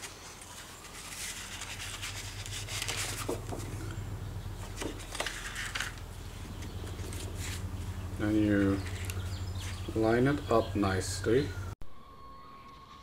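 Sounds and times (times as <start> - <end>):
photo paper rustling and rubbing: 0.0 - 4.0, 4.6 - 10.1
low steady hum: 0.0 - 13.0.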